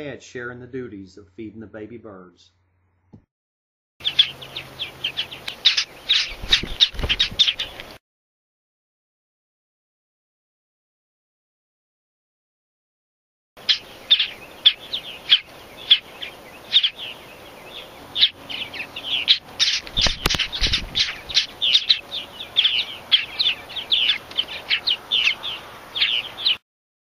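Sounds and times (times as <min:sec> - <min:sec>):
nestlings begging chirps: 0:04.0 - 0:08.0, 0:13.6 - 0:26.6.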